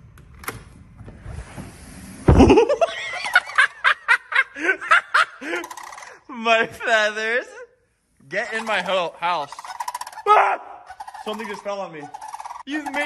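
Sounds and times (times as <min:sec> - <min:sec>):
cranes calling in pulses: 0:08.5 - 0:10.3, 0:10.9 - 0:13.0.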